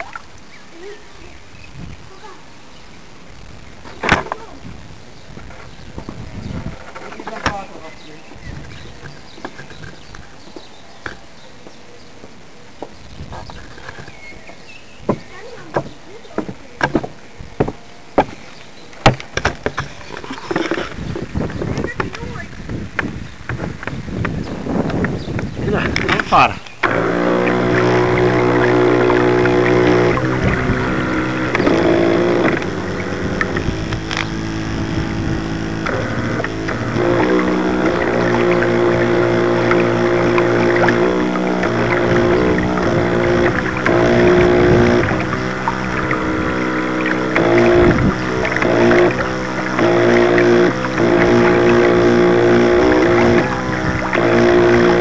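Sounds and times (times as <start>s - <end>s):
faint steady hiss: 0.0s - 49.6s
knocks and slaps on boat hull: 15.0s - 18.4s
model boat motor whirring: 23.8s - 55.0s.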